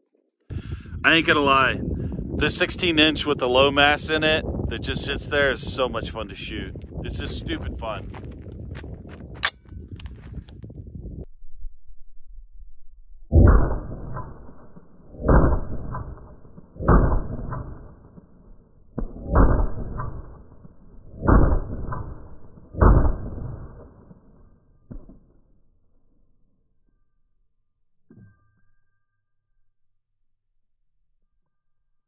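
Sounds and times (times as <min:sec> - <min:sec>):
slowed-down rifle shots: 0:12.7 - 0:25.7.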